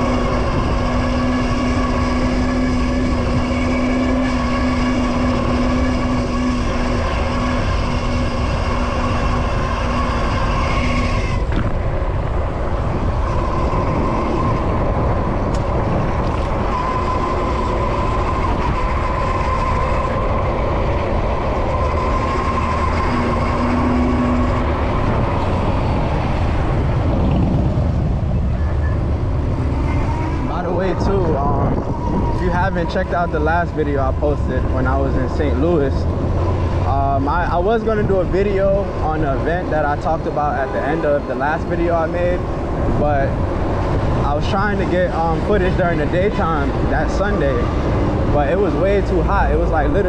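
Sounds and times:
constant whining tone: 0.0s - 50.0s
low hum: 0.0s - 50.0s
road rumble: 0.0s - 50.0s
wind noise: 0.0s - 50.0s.

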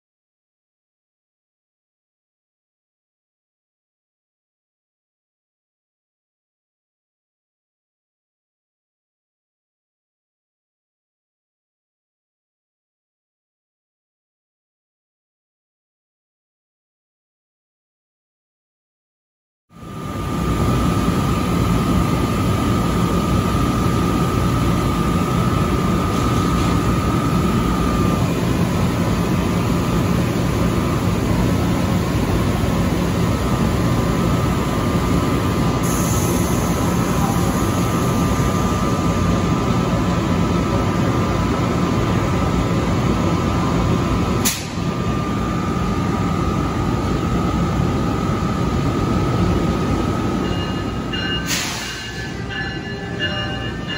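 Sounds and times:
electric locomotive blowers humming: 19.8s - 53.9s.

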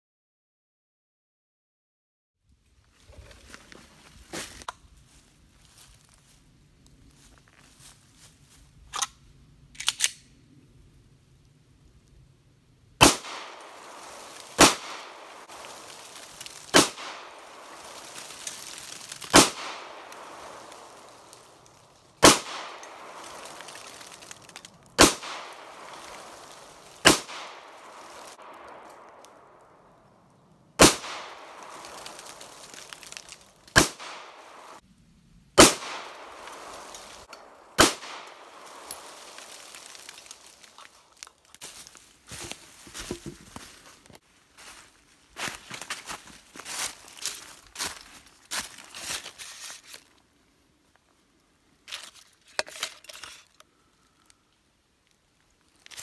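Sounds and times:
pistol shots with echo: 13.0s - 15.5s, 16.7s - 17.6s, 19.3s - 20.8s, 22.2s - 23.3s, 25.0s - 25.9s, 27.0s - 29.1s, 30.8s - 31.8s, 33.8s - 34.7s, 35.6s - 36.7s, 37.8s - 38.6s.

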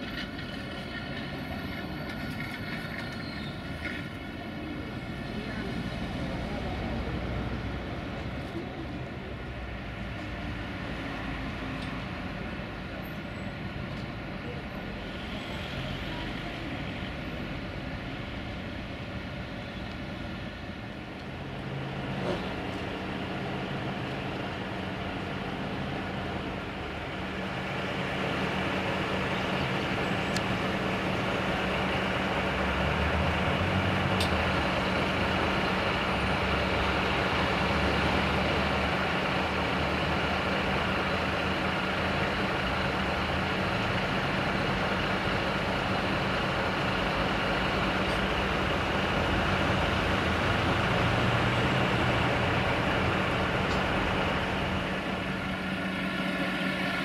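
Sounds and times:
truck diesel engine running: 0.0s - 57.0s.

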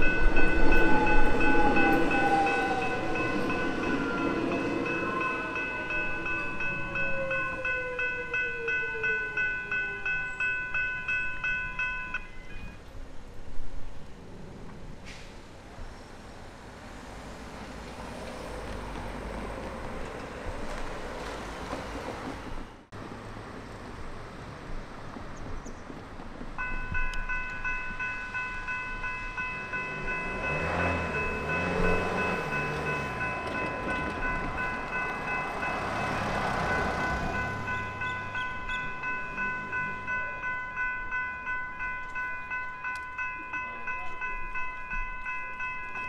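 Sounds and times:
level-crossing warning bell: 0.0s - 12.8s, 26.6s - 46.0s
vehicle driving past: 29.8s - 38.0s.

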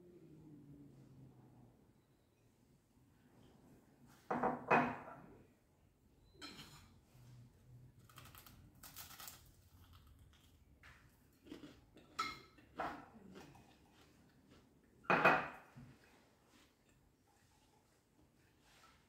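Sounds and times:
glass and plate knocking on table: 4.3s - 5.2s, 15.1s - 15.6s
crunching toast: 8.0s - 10.6s.

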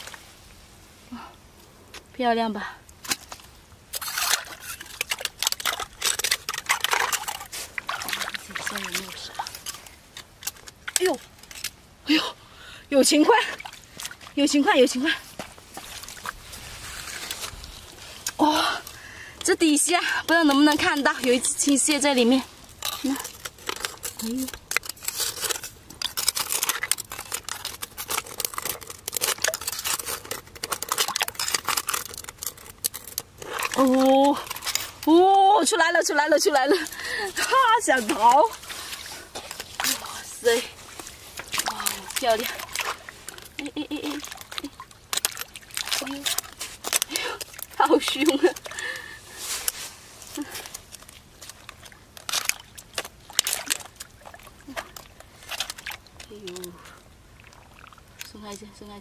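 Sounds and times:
water splashing and sloshing: 2.8s - 59.0s
metal tongs scraping on rock: 3.9s - 11.8s, 19.4s - 54.0s.

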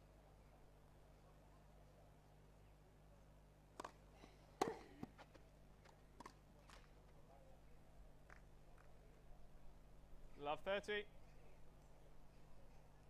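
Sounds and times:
racket hitting tennis ball: 3.8s - 4.0s, 4.6s - 6.8s
tennis ball bouncing: 3.8s - 4.0s, 4.6s - 6.9s.

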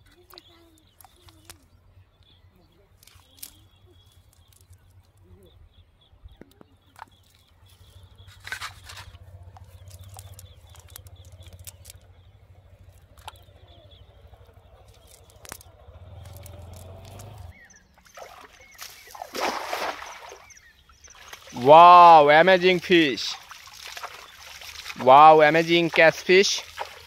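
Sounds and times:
net clicks and rustles: 3.0s - 5.2s, 8.2s - 13.4s, 14.7s - 17.5s
low steady rumble: 7.7s - 18.0s
water splashing from wading: 8.2s - 27.0s.

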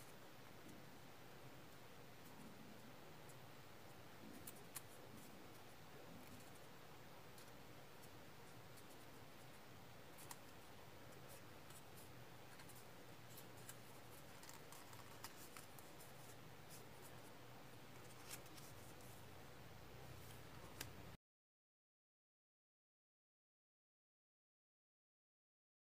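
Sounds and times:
low steady hiss: 0.0s - 21.2s
paper crinkling and clicking: 10.1s - 17.2s, 17.9s - 19.2s.

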